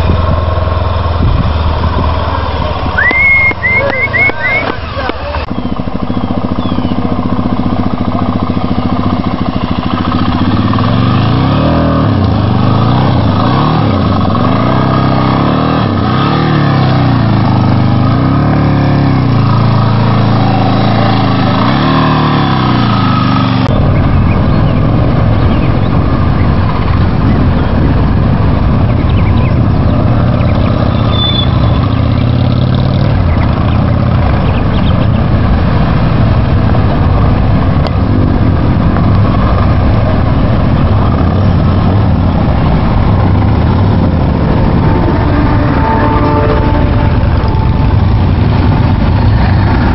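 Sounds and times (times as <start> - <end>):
motorcycle engine revving: 0.0 - 49.9
motorcycles riding slowly: 0.0 - 49.9.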